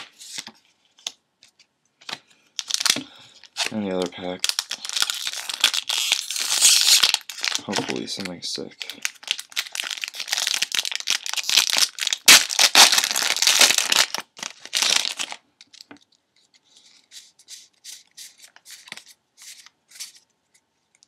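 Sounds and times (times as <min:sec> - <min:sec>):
foil wrapper tearing and crinkling: 0:02.6 - 0:08.1, 0:09.0 - 0:15.9
soft rustles of cards: 0:15.6 - 0:21.0.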